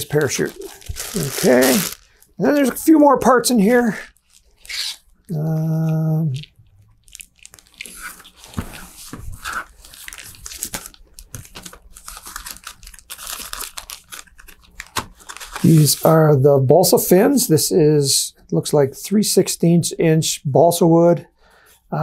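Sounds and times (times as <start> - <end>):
plastic bag crinkling: 0.0 - 5.4, 6.2 - 16.1
man humming: 5.3 - 6.4.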